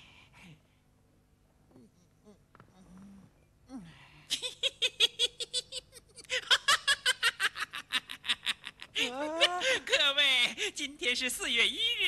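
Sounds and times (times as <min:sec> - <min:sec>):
man laughing hard: 0:04.3 - 0:09.9.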